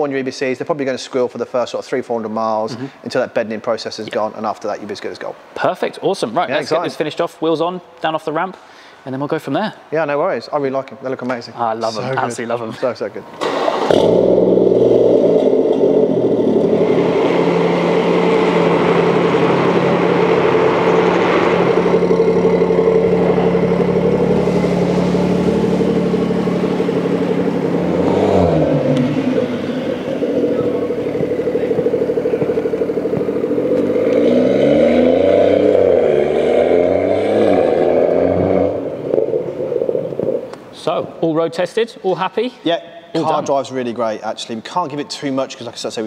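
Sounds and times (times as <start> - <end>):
car engine idling and revving: 13.4 - 40.7.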